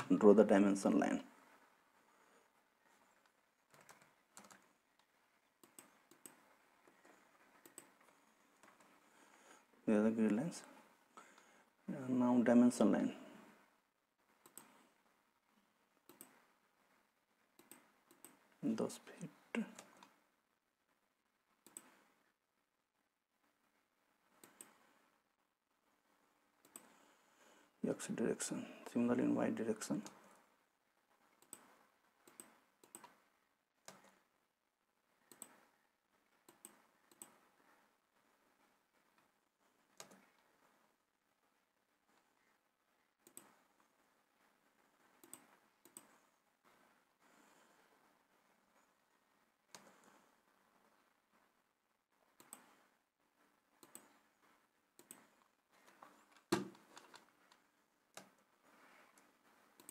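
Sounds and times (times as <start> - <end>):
computer mouse clicks: 3.1 - 9.0, 14.4 - 14.9, 16.0 - 16.5, 17.6 - 18.6, 19.2 - 20.2, 21.6 - 22.1, 24.3 - 24.9, 26.6 - 27.0, 29.9 - 30.4, 31.3 - 33.2, 33.8 - 34.3, 35.3 - 35.7, 36.4 - 37.6, 39.9 - 40.5, 43.2 - 43.9, 45.0 - 46.9, 49.7 - 50.2, 52.3 - 52.9, 53.7 - 59.9.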